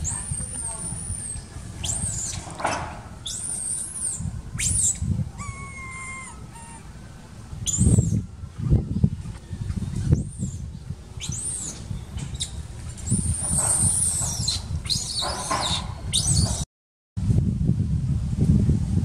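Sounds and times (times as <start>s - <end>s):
monkey whistling call: 0.0s - 8.2s, 11.2s - 16.6s
monkeys squealing: 0.0s - 8.2s, 11.2s - 16.6s
low rumbling thumps: 0.0s - 16.6s.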